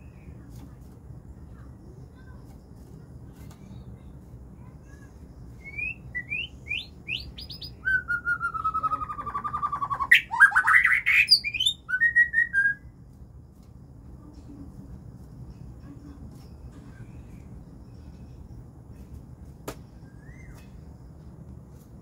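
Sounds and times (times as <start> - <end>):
songbird singing whistles and trills: 5.5 - 12.9, 20.0 - 20.8.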